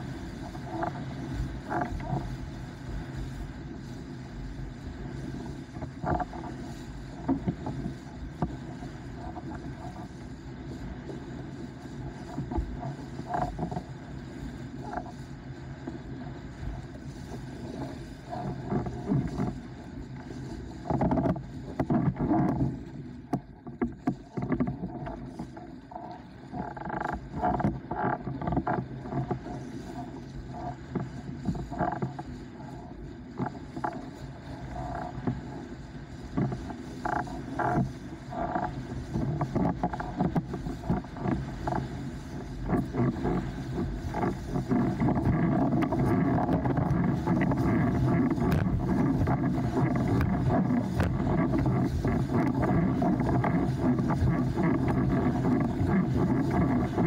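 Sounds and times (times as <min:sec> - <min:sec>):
wind on microphone: 0:00.0 - 0:57.0
water slapping against board: 0:42.7 - 0:57.0.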